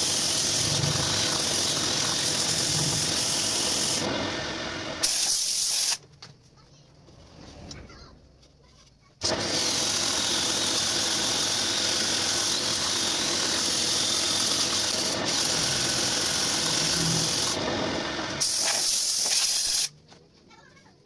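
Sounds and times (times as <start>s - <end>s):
wood lathe tool scraping wood: 0.0s - 4.7s, 9.2s - 18.6s.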